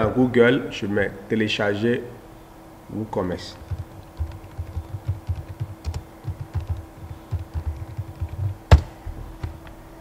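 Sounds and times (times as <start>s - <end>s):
faint steady hum: 0.0s - 10.0s
typing on computer keyboard: 3.6s - 9.6s.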